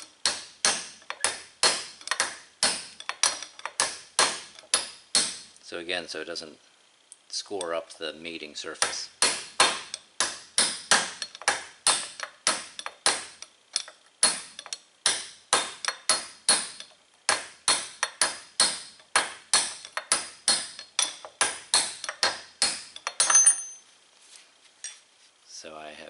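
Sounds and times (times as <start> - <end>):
hammer tapping steel punch: 0.0 - 5.5, 8.8 - 23.8.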